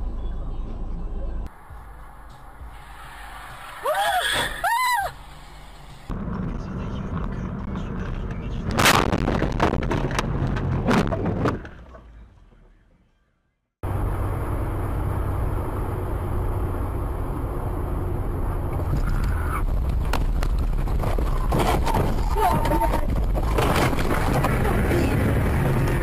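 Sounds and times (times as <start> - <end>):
road and engine rumble: 0.0 - 26.0
knocks and clatter: 6.3 - 12.7, 18.7 - 26.0.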